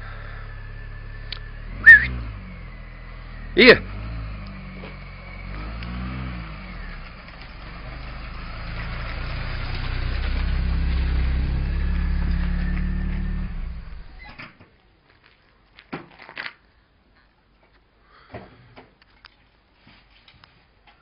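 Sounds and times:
vehicle engine running: 0.0 - 14.3.

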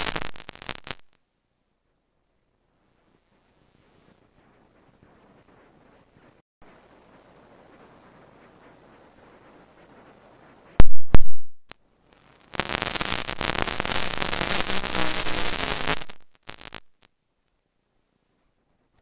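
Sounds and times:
harsh crackling static: 0.0 - 1.2, 1.9 - 17.6
loud sharp pops: 0.0 - 1.2, 10.8 - 11.8.

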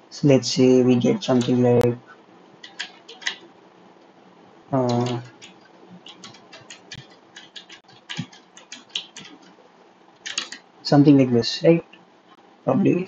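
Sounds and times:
keyboard keystrokes clicking: 1.2 - 1.6, 2.6 - 3.4, 4.8 - 9.5, 10.2 - 10.6
person humming: 12.7 - 13.0.

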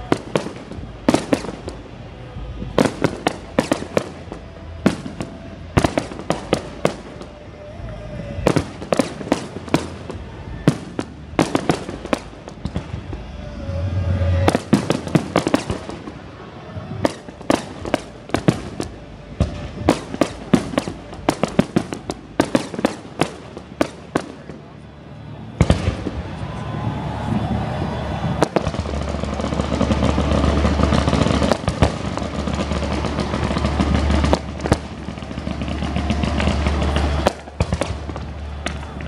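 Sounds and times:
low rumble: 0.0 - 22.4
fireworks bangs and crackling: 0.0 - 39.0.

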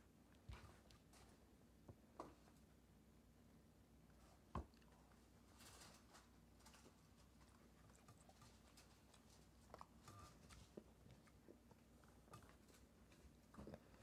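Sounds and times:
soft rustles: 4.1 - 11.3.

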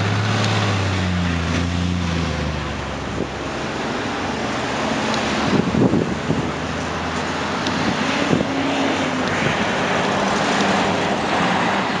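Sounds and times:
street traffic: 0.0 - 12.0
wind buffeting microphone: 5.2 - 12.0.

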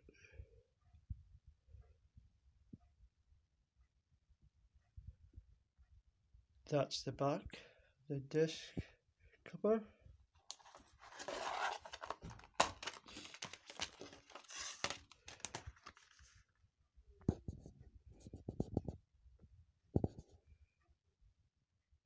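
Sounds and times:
plastic case rustling and scraping: 10.5 - 16.4.

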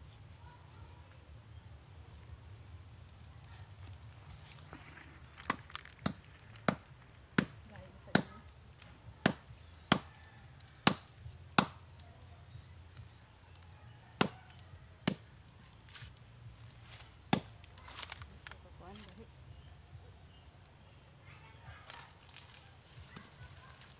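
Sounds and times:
knife chopping into palm trunk: 10.8 - 11.8, 14.2 - 15.4, 17.3 - 18.2.

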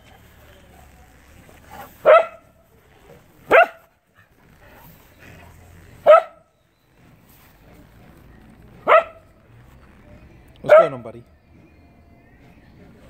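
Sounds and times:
dog barking: 1.7 - 2.6, 3.5 - 4.0, 6.0 - 6.5, 8.8 - 9.4, 10.6 - 11.0.

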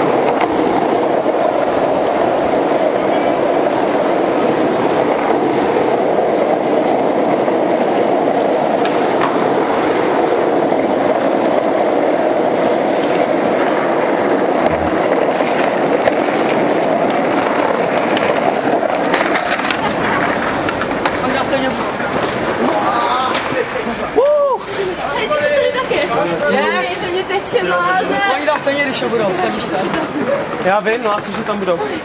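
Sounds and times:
sharp skateboard clacks: 0.0 - 23.7
skateboard wheels rolling on asphalt: 0.0 - 32.0.

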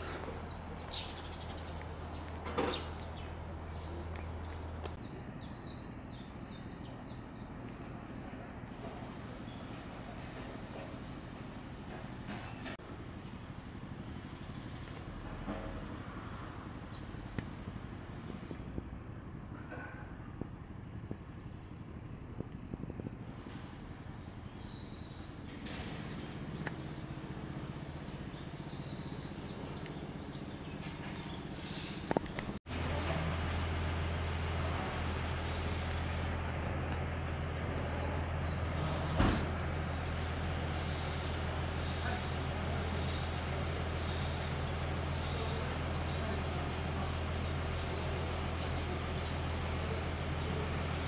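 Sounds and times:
distant traffic rumble: 0.0 - 51.0
low mechanical hum: 0.0 - 51.0
outdoor background hiss: 0.0 - 51.0
bird chirps: 5.0 - 8.2, 24.1 - 25.5, 38.4 - 51.0.

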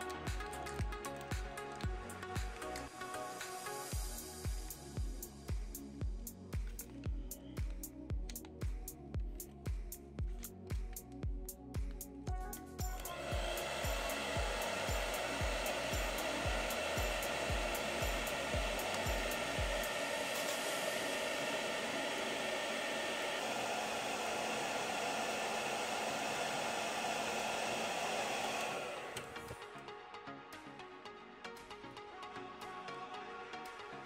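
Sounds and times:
hair dryer blowing: 0.0 - 8.6, 12.8 - 29.7.

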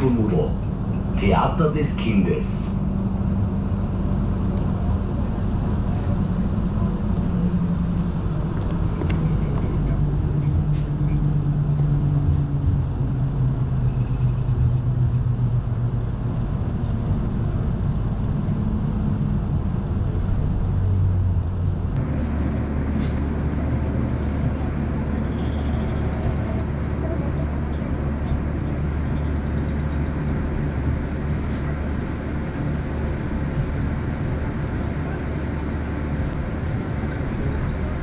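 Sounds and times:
tram motor hum: 0.0 - 38.0
tram rumbling on track: 0.0 - 38.0.

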